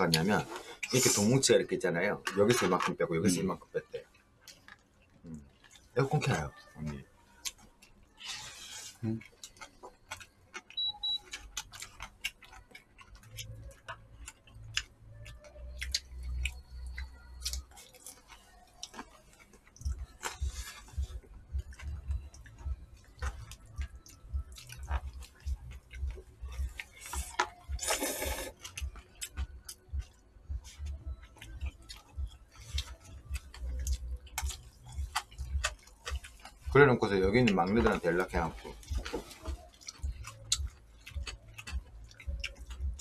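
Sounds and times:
noodle slurping: 27.2s - 28.6s.

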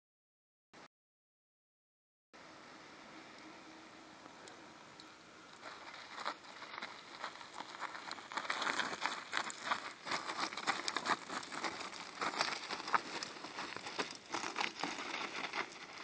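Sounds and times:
gravel crunching: 5.0s - 16.0s.

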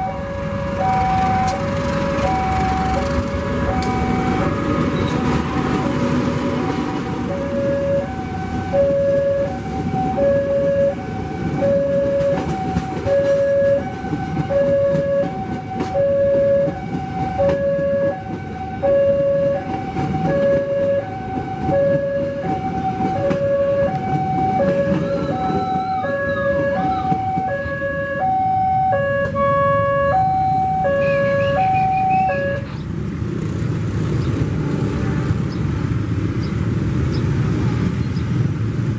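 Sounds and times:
rumble of train coaches: 0.0s - 38.9s
waiting traffic and motorbikes: 0.0s - 38.9s.

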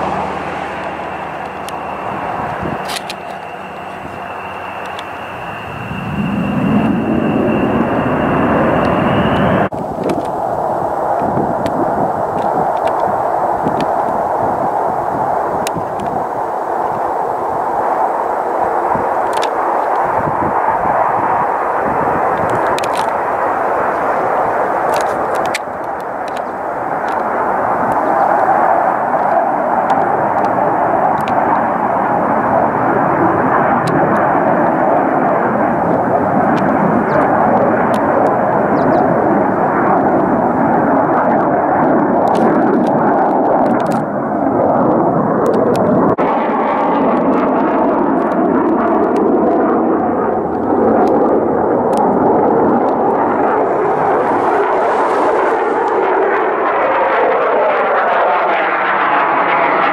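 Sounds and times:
sweeping wavering tone: 0.0s - 9.7s
fighter jet engine roar: 0.0s - 59.9s.

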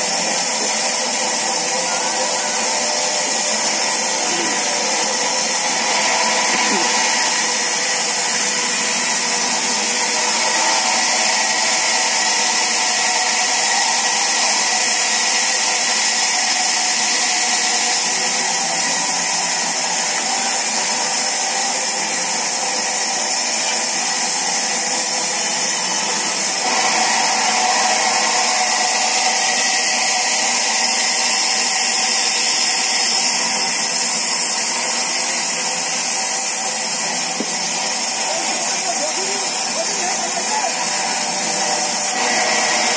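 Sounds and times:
powered saw cutting wood: 0.0s - 42.9s.

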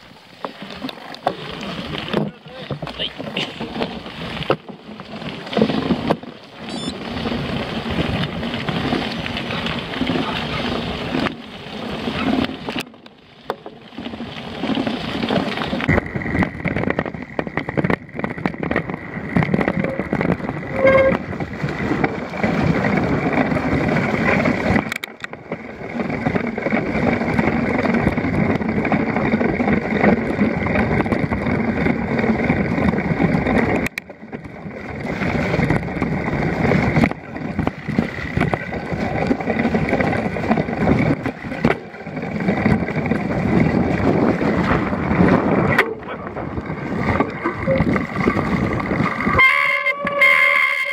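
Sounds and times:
bike knocks and rattles: 0.0s - 50.9s
tyres rumbling on mud and stones: 0.0s - 50.9s.

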